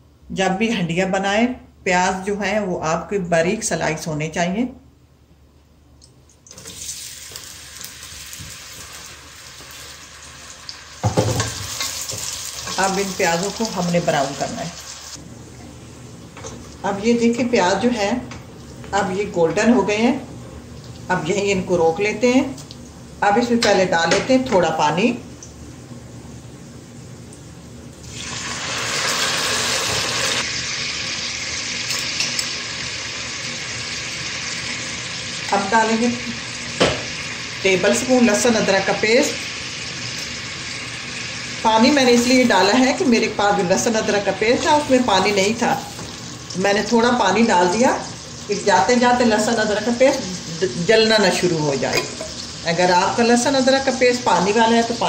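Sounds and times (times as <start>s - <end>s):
onions sizzling in hot fat: 6.5s - 15.2s, 28.0s - 55.0s.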